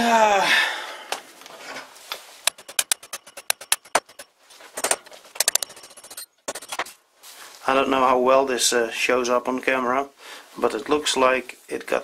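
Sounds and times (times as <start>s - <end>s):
drill spindle rapid clicking: 2.5s - 6.8s.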